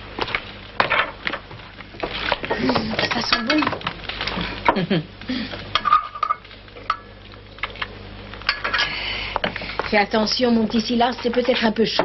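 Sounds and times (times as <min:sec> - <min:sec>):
ladle and crockery clinking: 0:02.6 - 0:03.8, 0:05.8 - 0:07.8.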